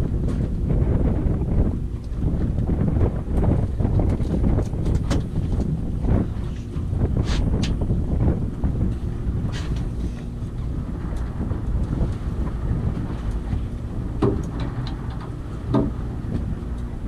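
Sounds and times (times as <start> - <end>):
steady low rumble: 0.0 - 17.0
wind buffeting microphone: 0.0 - 17.0
short knocks: 14.2 - 16.0.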